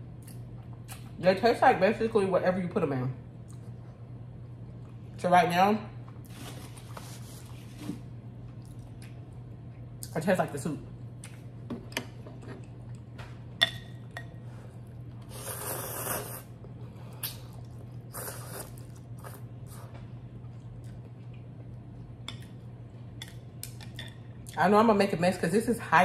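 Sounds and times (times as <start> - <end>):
person slurping noodles: 15.3 - 16.5, 18.1 - 19.4.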